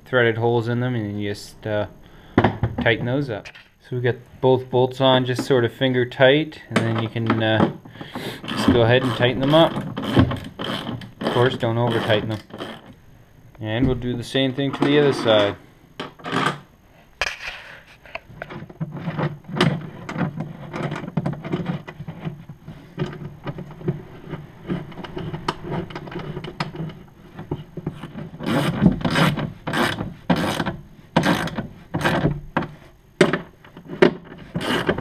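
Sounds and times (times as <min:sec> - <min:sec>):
socket ratchet clicking: 0:34.5 - 0:35.0.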